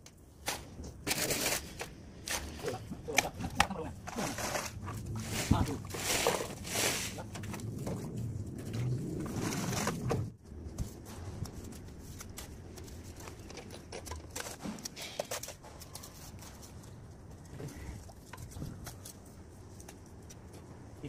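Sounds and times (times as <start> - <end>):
trowel in wet cement: 0.5 - 7.4.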